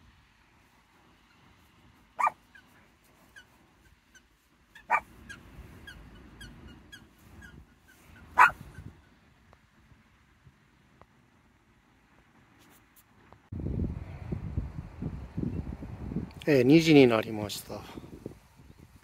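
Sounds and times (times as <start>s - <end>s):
dog barking: 2.2s - 2.4s, 4.8s - 5.1s, 8.3s - 8.8s.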